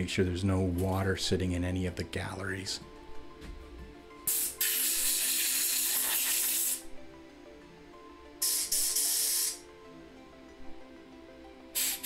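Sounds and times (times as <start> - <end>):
compressed air blowing: 4.3 - 6.9, 8.4 - 9.6, 11.7 - 12.0.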